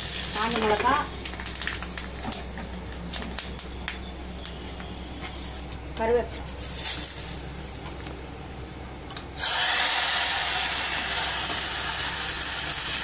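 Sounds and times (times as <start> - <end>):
hot oil sizzling: 0.0 - 2.5, 6.5 - 8.6, 9.3 - 13.0.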